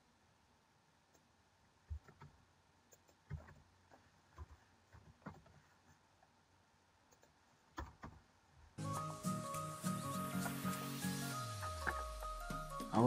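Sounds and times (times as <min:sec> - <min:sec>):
computer keyboard and mouse clicks: 0:01.9 - 0:03.6, 0:07.1 - 0:08.2.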